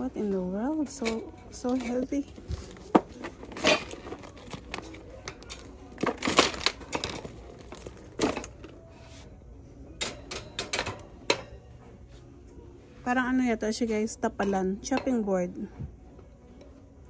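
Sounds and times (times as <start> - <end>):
clinks and knocks against cart: 0.9 - 8.7, 10.0 - 11.6.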